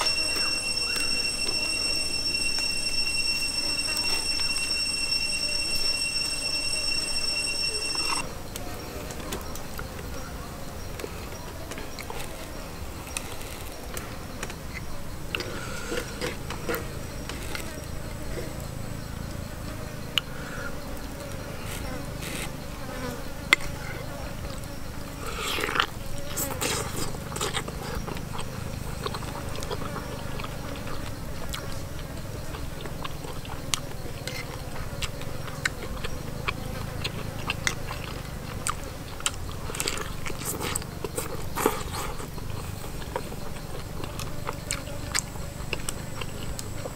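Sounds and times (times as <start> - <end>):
insect buzz: 9.5 - 46.9
person chewing meat: 25.2 - 46.9.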